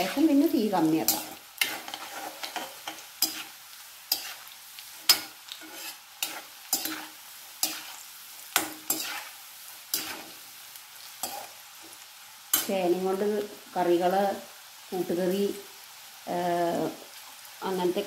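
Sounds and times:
food deep-frying in oil: 0.0s - 18.0s
steel spoon scraping pan: 1.0s - 8.0s, 8.6s - 10.4s, 11.2s - 11.5s.

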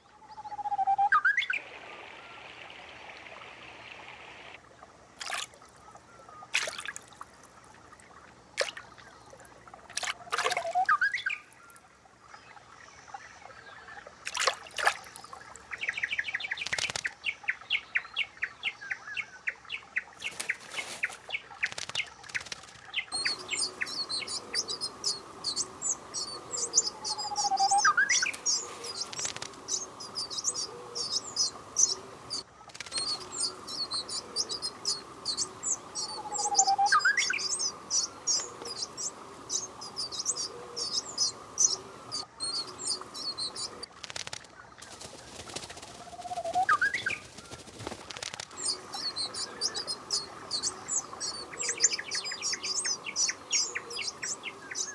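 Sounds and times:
sharp bird calls: 5.2s - 11.9s, 12.5s - 54.9s
nestlings begging with high chirps: 23.1s - 43.9s, 48.5s - 54.9s
rising bird call: 23.2s - 32.4s, 33.0s - 43.8s.

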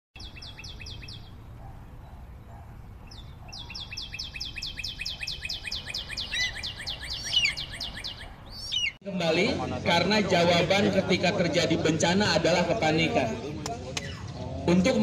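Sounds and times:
bird singing descending chirps: 0.2s - 1.4s, 3.0s - 9.0s
other chirping calls: 0.2s - 9.0s.

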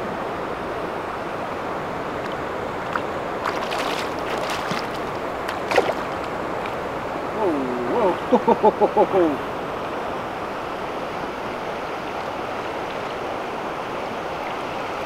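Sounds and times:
shallow river running: 0.0s - 15.0s
fish splashing at surface: 2.8s - 6.8s.

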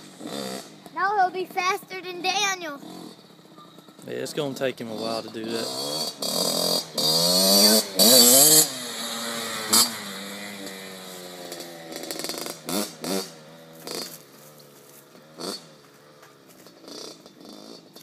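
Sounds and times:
two-stroke motorcycle engine revving: 0.0s - 18.0s.

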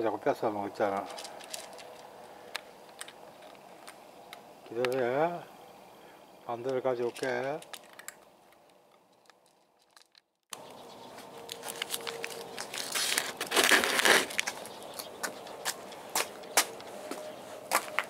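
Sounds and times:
footsteps crunching on gravel: 0.8s - 2.1s, 9.4s - 18.0s
clicks and rustles of handling: 0.9s - 5.0s, 6.6s - 17.2s.

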